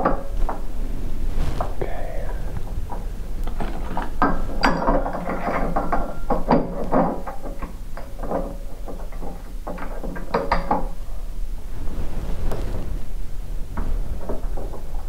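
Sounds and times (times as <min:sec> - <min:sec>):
metal parts clanking and rattling: 0:03.5 - 0:10.9.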